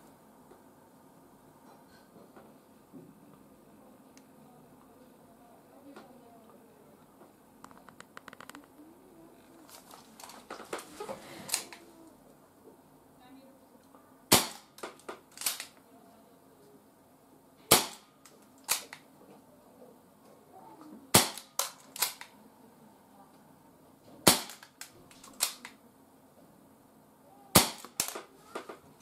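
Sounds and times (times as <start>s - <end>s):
airsoft revolver shots: 14.3s - 15.7s, 17.7s - 18.1s, 18.7s - 19.0s, 21.1s - 22.3s, 24.3s - 25.6s, 27.6s - 28.2s.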